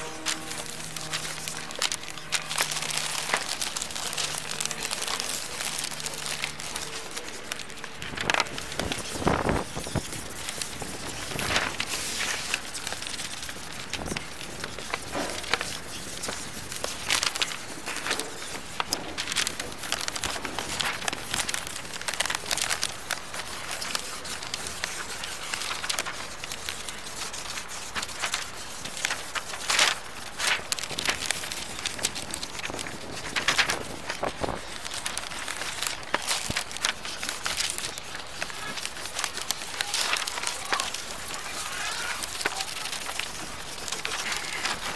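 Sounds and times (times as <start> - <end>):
paper rustling: 0.0 - 44.9
drawing tool scratching on paper: 8.4 - 20.8.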